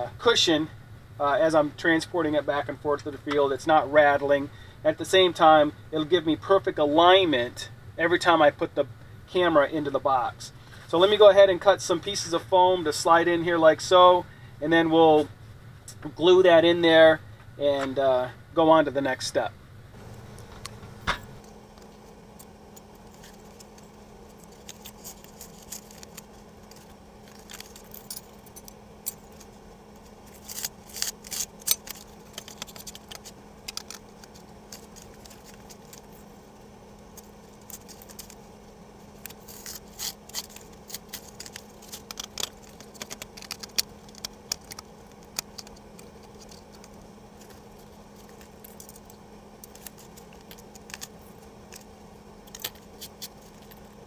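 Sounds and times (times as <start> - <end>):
faint steady hum: 0.0 - 54.0
foam and cardboard scraping: 39.2 - 44.3.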